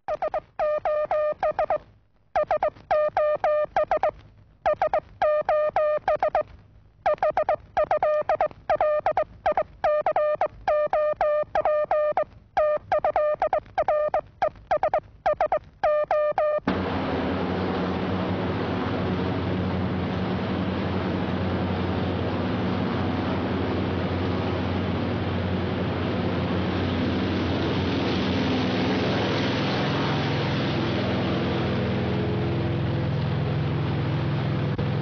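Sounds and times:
rapid short beeping notes: 0:00.0 - 0:01.8, 0:02.4 - 0:06.5, 0:07.1 - 0:16.7.

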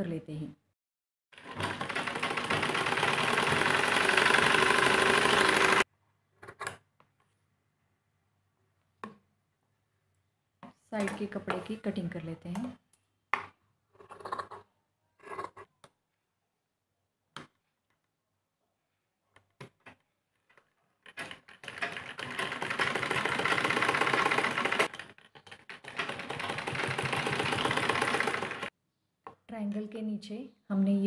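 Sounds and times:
sewing machine stitching: 0:01.4 - 0:05.8, 0:21.1 - 0:28.7.

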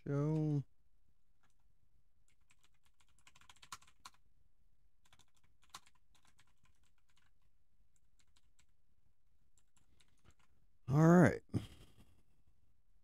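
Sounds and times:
keyboard typing: 0:02.3 - 0:04.2, 0:05.0 - 0:07.4, 0:08.0 - 0:08.7, 0:09.6 - 0:10.5.

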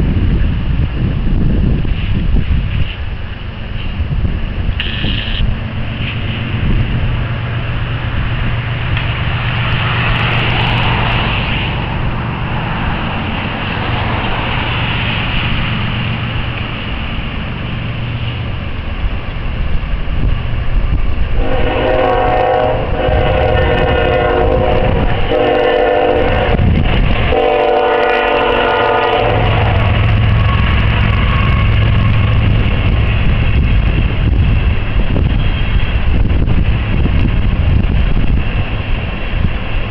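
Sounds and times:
diesel locomotive engines rumbling: 0:00.0 - 0:39.9
freight cars rolling by: 0:00.0 - 0:39.9
locomotive air horn blasts: 0:04.8 - 0:05.4, 0:21.4 - 0:26.7, 0:27.3 - 0:32.2, 0:35.3 - 0:36.0.

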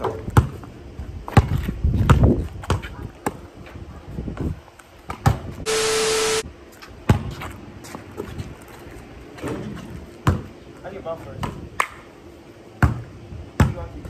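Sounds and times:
basketball bouncing on concrete: 0:00.3 - 0:00.6, 0:12.8 - 0:13.0, 0:13.6 - 0:13.8
short steady hiss with low hum: 0:05.7 - 0:06.4.

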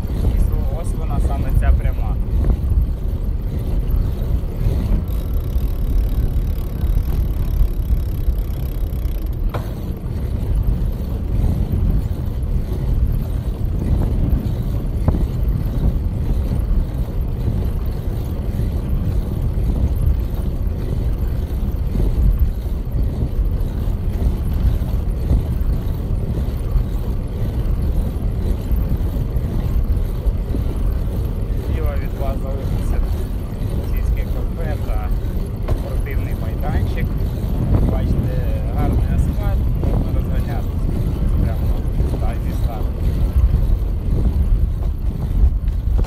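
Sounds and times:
bicycle tyres on asphalt: 0:00.0 - 0:46.0
wind buffeting microphone: 0:00.0 - 0:46.0.

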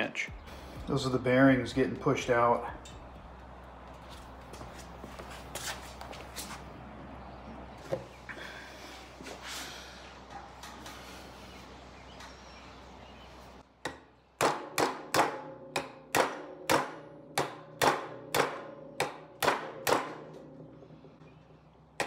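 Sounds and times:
hammer striking steel rod: 0:13.8 - 0:20.4.

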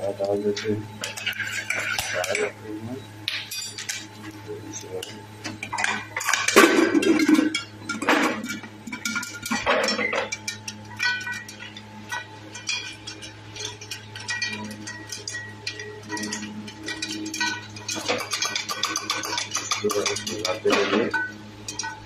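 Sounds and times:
popcorn popping against metal lid: 0:05.0 - 0:22.0.

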